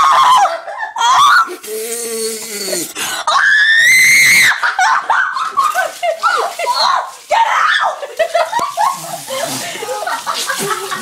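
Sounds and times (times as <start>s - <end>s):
person screaming: 0.0s - 4.6s
person groaning: 1.5s - 3.1s
person laughing: 8.0s - 11.0s.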